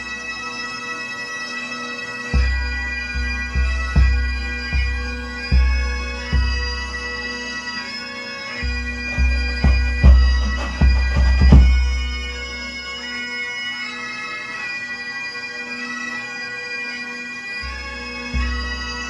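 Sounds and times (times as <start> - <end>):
bagpipes over drones: 0.0 - 19.0
bass drum strokes: 8.6 - 12.1.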